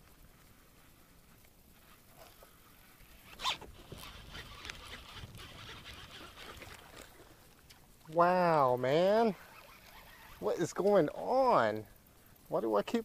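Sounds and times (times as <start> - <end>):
fishing reel whirring: 2.8 - 7.4, 9.0 - 10.9.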